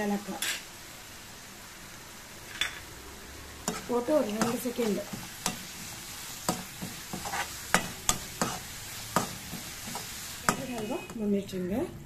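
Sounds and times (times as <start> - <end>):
food sizzling in a pan: 0.0 - 12.0
spatula scraping a pan: 3.6 - 11.2.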